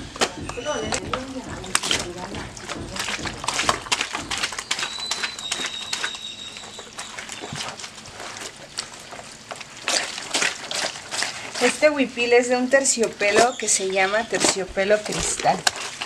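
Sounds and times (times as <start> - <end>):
bird calling: 0.0 - 7.8
wet cloth squelching and patting: 0.0 - 16.0.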